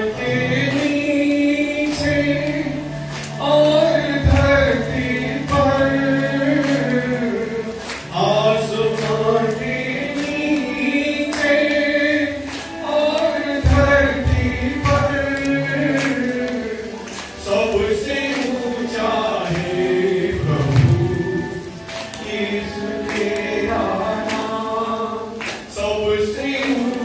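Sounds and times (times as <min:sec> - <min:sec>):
congregation singing a hymn: 0:00.0 - 0:27.0.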